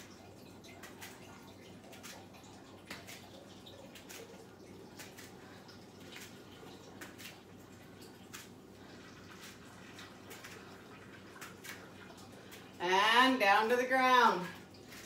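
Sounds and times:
low steady hum: 0.0 - 15.0
clicks and rustles on exercise mat: 9.3 - 11.9.

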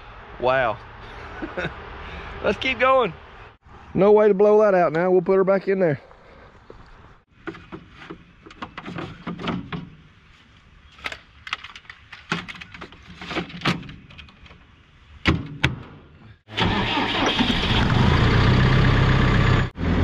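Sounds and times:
diesel engine running: 16.5 - 20.0.

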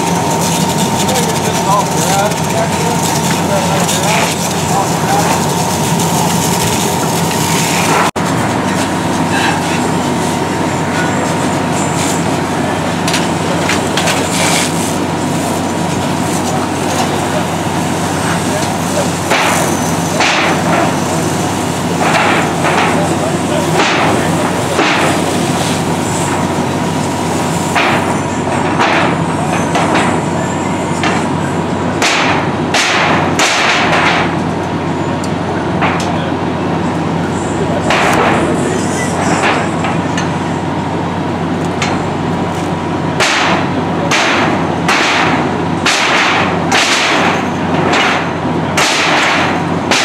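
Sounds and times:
fire engine pump running: 0.0 - 50.0
sharp cracks: 32.0 - 34.3, 43.2 - 50.0
pole banging on sheet metal: 32.0 - 34.4, 43.2 - 50.0.

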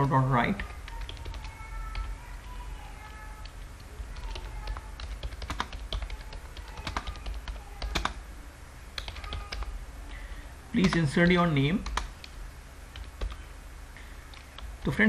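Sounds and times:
steady low hum: 0.0 - 15.0
computer keyboard clicks: 0.6 - 2.1, 4.2 - 8.2, 9.0 - 9.7, 10.8 - 13.4.

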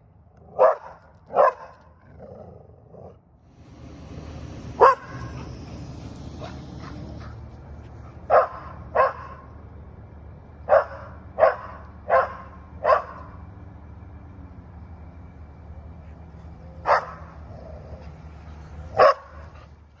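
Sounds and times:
dog barking: 0.5 - 1.8, 4.8 - 5.5, 8.3 - 9.5, 10.7 - 13.3, 16.8 - 17.3, 18.9 - 19.6.

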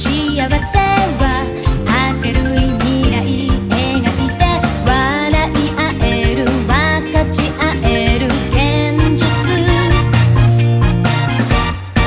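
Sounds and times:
woman singing pop song: 0.0 - 10.4
drum beat and band backing: 0.0 - 12.0
strong bass note: 9.4 - 12.0.

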